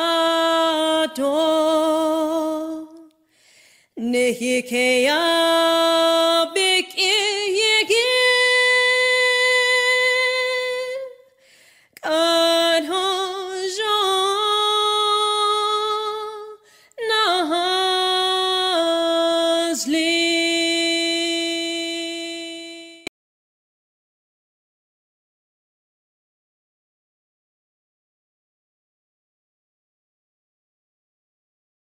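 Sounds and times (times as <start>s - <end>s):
woman singing unaccompanied: 0.0s - 3.2s, 4.0s - 11.3s, 12.0s - 23.1s
singer breathing: 3.2s - 4.0s, 11.3s - 12.0s, 16.6s - 17.0s.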